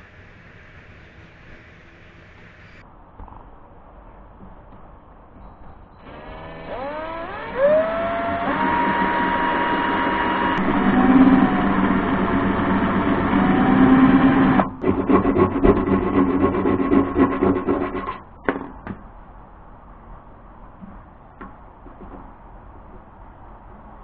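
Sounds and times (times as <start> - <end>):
cordless drill drilling metal: 6.0 - 14.9.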